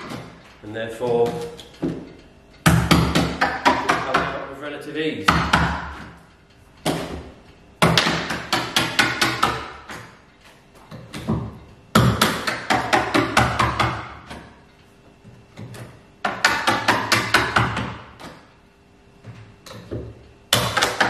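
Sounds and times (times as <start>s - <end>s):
hammer tapping on fibreglass: 1.1s - 4.5s, 5.2s - 6.2s, 6.8s - 10.2s, 11.0s - 14.5s, 15.6s - 18.4s, 19.2s - 21.0s.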